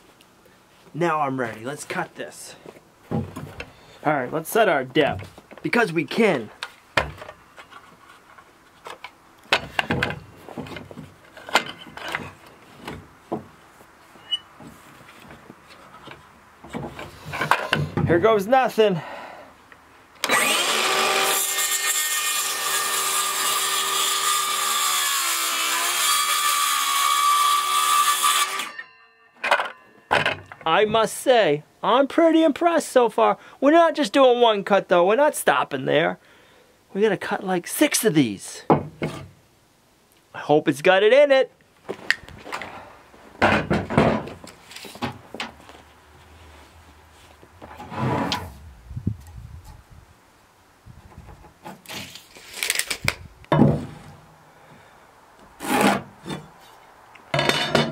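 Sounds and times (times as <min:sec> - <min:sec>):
circular saw cutting wood: 0:20.2 - 0:28.8
wooden board scraping: 0:38.9 - 0:39.3, 0:47.6 - 0:48.7, 0:55.6 - 0:56.8
tape measure pulled out: 0:51.8 - 0:53.2.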